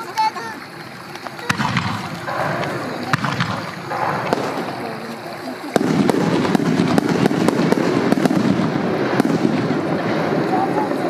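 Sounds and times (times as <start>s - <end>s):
fireworks rumble with pops and crackles: 0.0s - 11.0s
firework shell bang: 1.4s - 5.0s, 5.7s - 10.3s.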